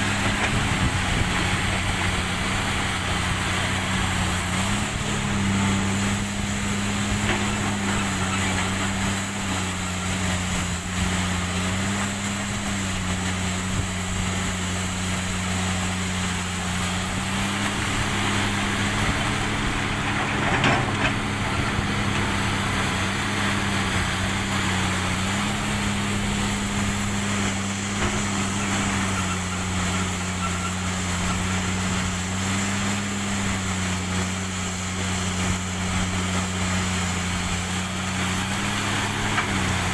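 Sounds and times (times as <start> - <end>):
excavator diesel engine running: 0.0 - 39.9
coal crashing into truck bed: 19.4 - 22.6.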